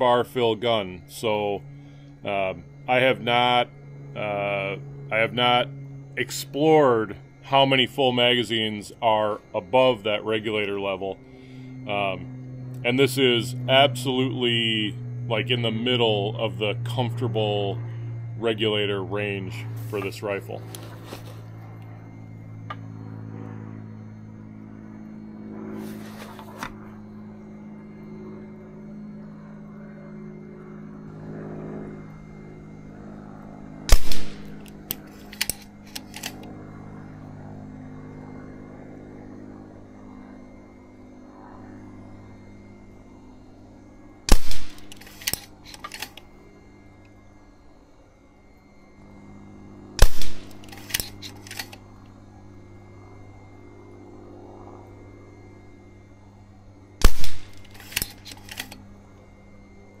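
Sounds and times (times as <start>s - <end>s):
air rifle shots: 33.9s - 36.4s, 44.3s - 46.2s, 50.0s - 51.8s, 57.0s - 58.8s
small clicks: 33.9s - 36.5s, 44.4s - 46.3s, 50.0s - 51.9s, 57.0s - 58.9s.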